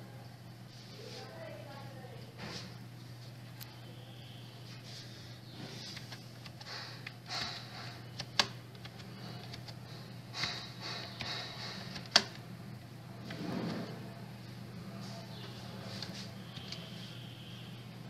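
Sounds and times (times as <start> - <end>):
keyboard keys clicking: 8.2 - 9.8, 10.4 - 12.4.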